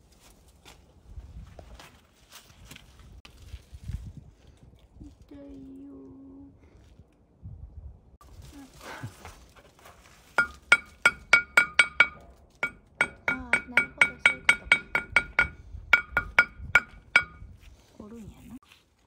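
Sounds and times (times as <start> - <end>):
hammer striking metal wire: 10.3 - 17.6.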